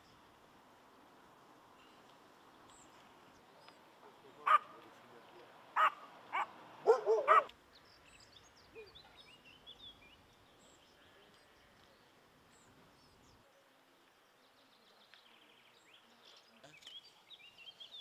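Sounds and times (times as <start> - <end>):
animal barking: 4.4 - 4.8, 5.8 - 7.5.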